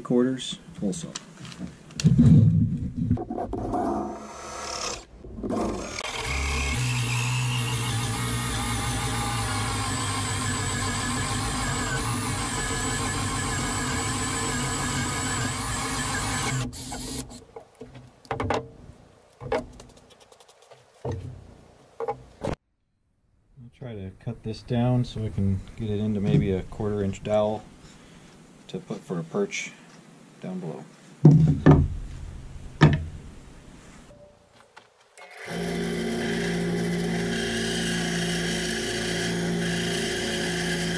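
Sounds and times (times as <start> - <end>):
drill hole saw cutting wood: 4.0 - 17.4, 35.2 - 40.9
sharp knocks and clicks: 16.9 - 18.8, 19.4 - 21.4, 22.0 - 22.6.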